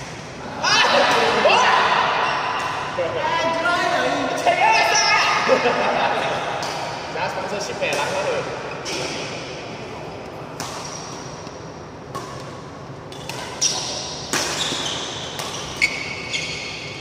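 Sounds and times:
racquets smacking shuttlecock: 10.6 - 16.1
shoes squeaking on court floor: 13.1 - 17.0.

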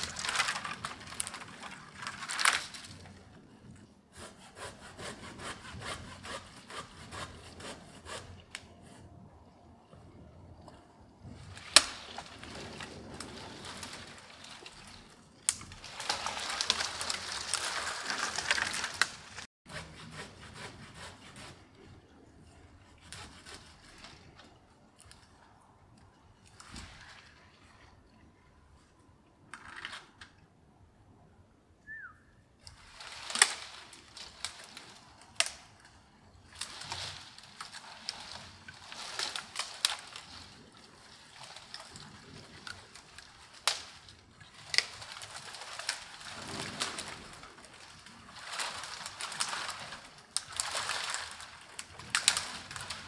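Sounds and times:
dry branches crackling and snapping: 0.0 - 3.8, 10.6 - 19.5, 20.5 - 27.6, 32.6 - 53.0
rustling brush: 0.0 - 9.2, 11.2 - 24.6, 32.7 - 53.0.

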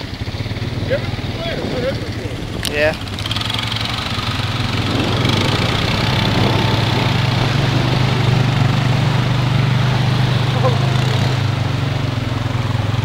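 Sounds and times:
atv engine running: 0.0 - 13.0.

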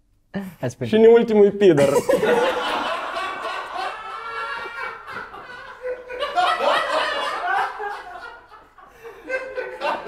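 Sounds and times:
men laughing hard: 1.8 - 10.0.

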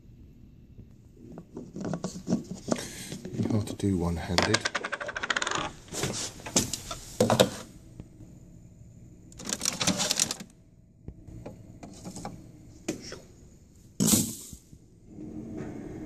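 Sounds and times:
plastic pod clicking and clattering: 4.3 - 5.7, 9.4 - 10.5.

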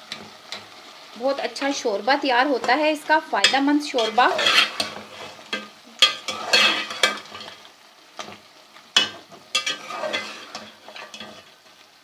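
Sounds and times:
oil sizzling: 0.0 - 12.0
spoon scraping a pot: 3.4 - 7.6, 9.0 - 11.6.

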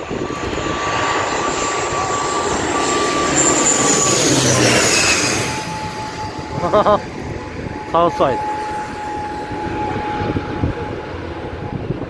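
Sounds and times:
high engine whine: 0.0 - 12.0
turboprop airliner passing overhead: 0.0 - 12.0.

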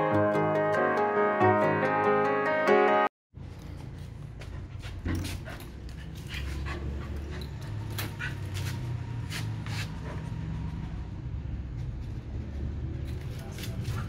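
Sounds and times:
dog panting: 4.3 - 9.0.

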